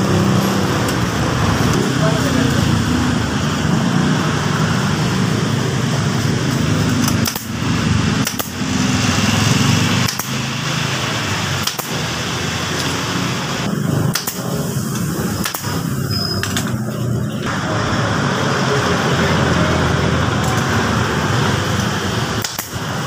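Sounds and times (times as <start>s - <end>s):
staple gun firing: 7.0s - 7.6s, 8.2s - 8.6s, 10.0s - 10.4s, 11.6s - 12.0s, 14.1s - 14.5s, 15.4s - 15.8s, 22.4s - 22.8s.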